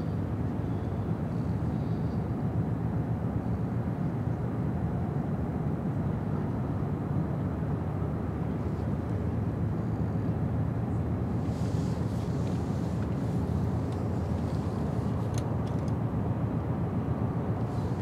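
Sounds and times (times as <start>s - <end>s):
ship diesel engines rumbling: 8.4s - 18.0s.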